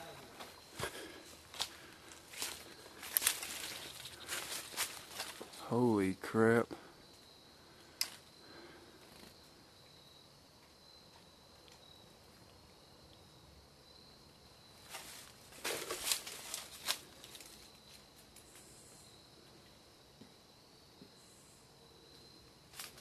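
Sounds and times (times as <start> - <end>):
faint steady high whine: 0.0 - 23.0
footsteps through dry leaves: 0.8 - 5.6, 14.9 - 17.6.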